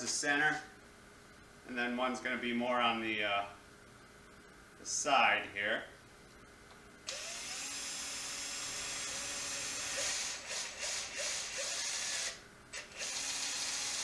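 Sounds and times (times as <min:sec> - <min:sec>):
cordless drill boring: 0:07.1 - 0:14.0.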